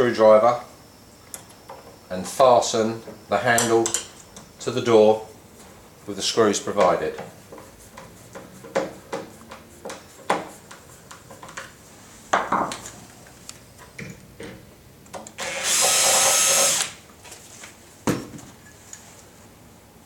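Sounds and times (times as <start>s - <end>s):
cordless drill driving screw: 15.4s - 17.0s.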